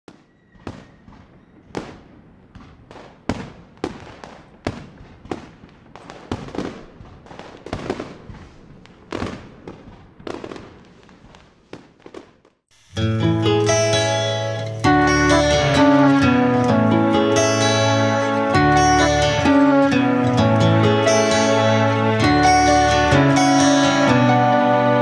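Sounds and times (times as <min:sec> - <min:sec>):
firecrackers banging: 0:00.1 - 0:13.0.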